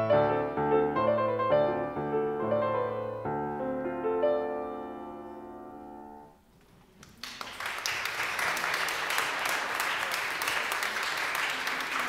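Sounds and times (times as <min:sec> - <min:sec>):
audience applause: 0:07.0 - 0:12.0.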